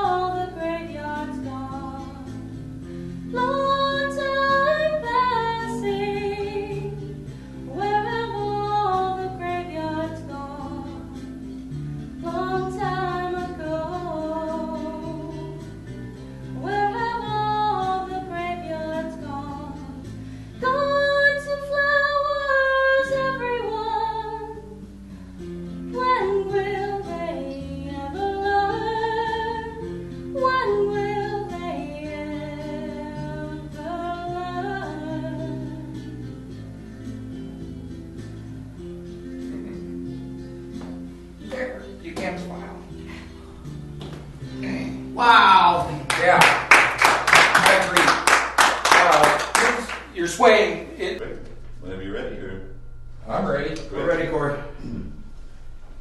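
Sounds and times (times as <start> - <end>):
woman singing: 0.0 - 2.5, 3.3 - 7.1, 7.7 - 11.2, 12.2 - 15.8, 16.6 - 24.8, 25.9 - 36.1
instrumental held chords: 0.0 - 48.5, 49.2 - 56.0.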